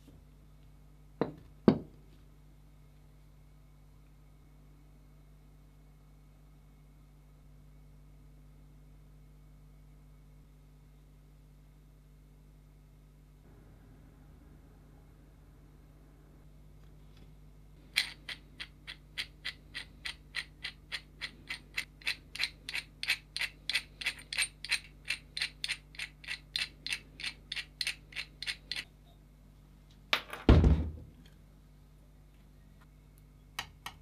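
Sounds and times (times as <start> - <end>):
wrench clicking: 18.0 - 28.9.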